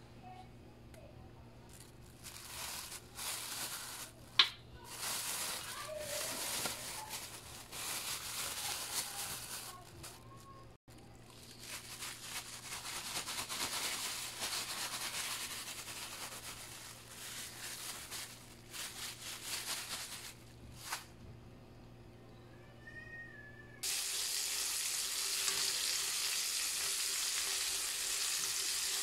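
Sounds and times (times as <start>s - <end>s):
plastic bag crinkling: 1.7s - 21.1s.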